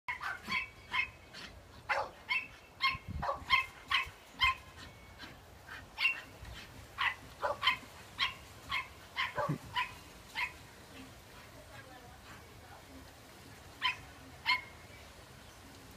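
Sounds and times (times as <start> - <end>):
small dogs barking: 0.1 - 11.2, 13.8 - 14.8.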